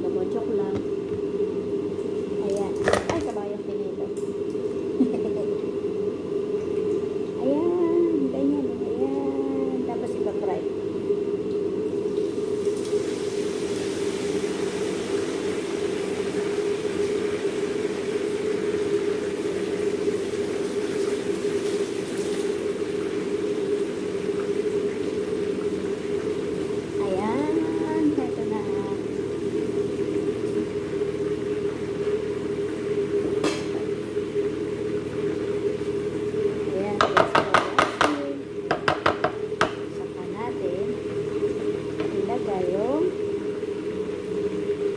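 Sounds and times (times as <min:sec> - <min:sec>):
appliance motor humming: 0:22.4 - 0:44.9.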